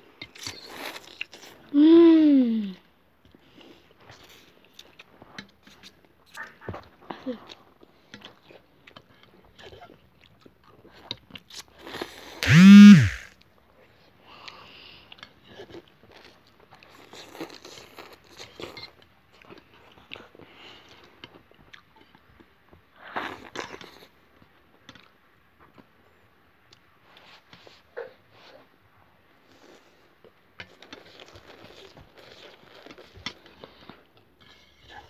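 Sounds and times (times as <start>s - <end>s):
short loud vocal sound: 12.4s - 13.3s.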